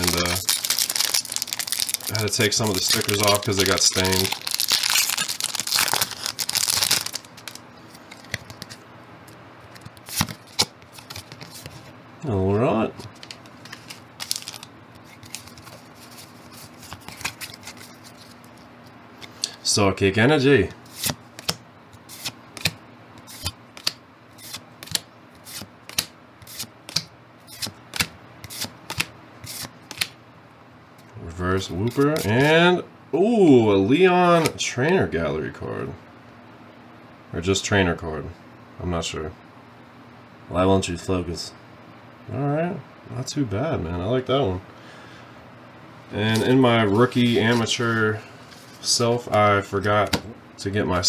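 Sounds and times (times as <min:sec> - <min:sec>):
foil wrapper crinkling: 0:00.0 - 0:08.6, 0:13.1 - 0:18.7
handling cards: 0:00.0 - 0:11.9, 0:12.9 - 0:19.4, 0:20.6 - 0:30.2, 0:31.6 - 0:32.5, 0:46.2 - 0:50.3
trading cards flicking: 0:21.0 - 0:30.2.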